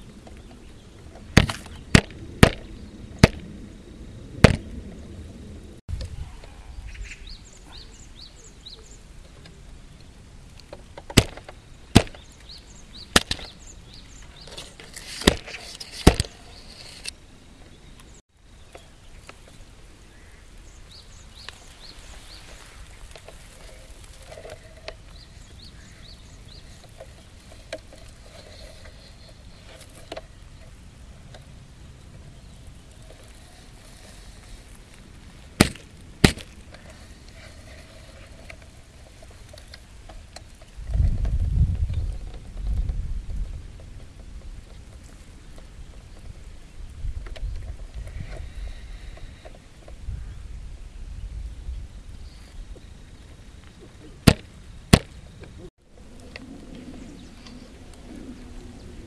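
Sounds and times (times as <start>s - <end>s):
faint outdoor background: 0.0s - 59.0s
sharp knocks: 54.2s - 55.1s.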